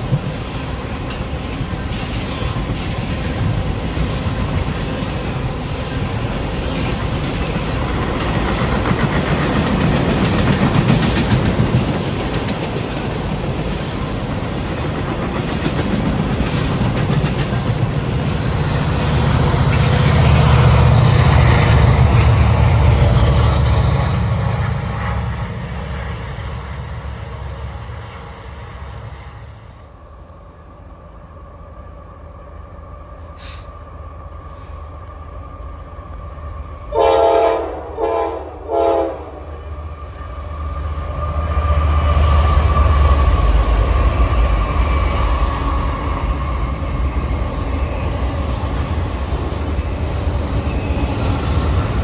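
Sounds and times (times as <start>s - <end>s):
train wheels clicking over rails: 0.0s - 27.2s.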